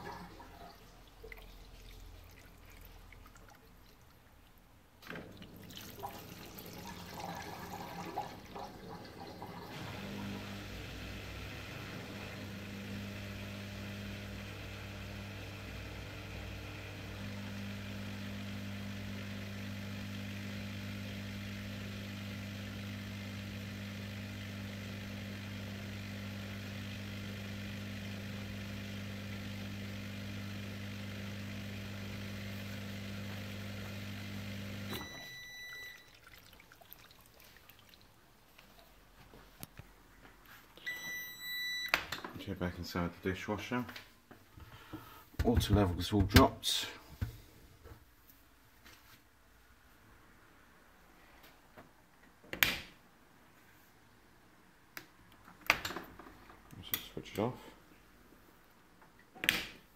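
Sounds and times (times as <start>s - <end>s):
water gurgling: 0.0s - 4.6s, 5.2s - 10.6s, 35.9s - 38.3s
drain pump humming: 5.0s - 38.1s
short high beep: 34.9s - 36.1s, 40.8s - 41.9s.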